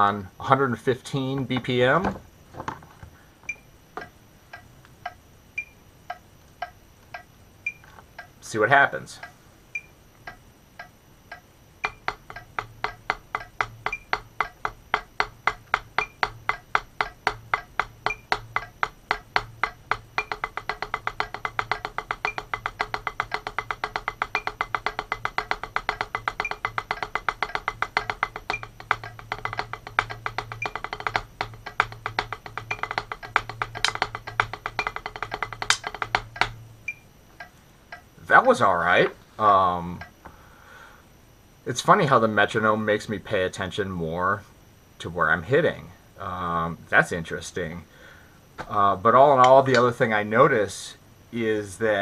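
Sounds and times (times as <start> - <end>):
faint metronome ticking: 3.5 - 39.1, 39.7 - 40.4
drumsticks tapping practice pad: 3.5 - 39.2, 39.9 - 40.4, 49.4 - 50.0.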